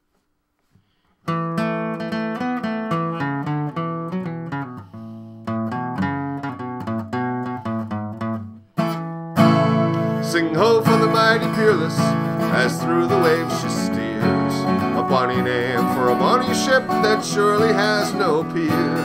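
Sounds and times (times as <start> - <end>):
acoustic guitar picking and strumming: 1.2 - 19.0.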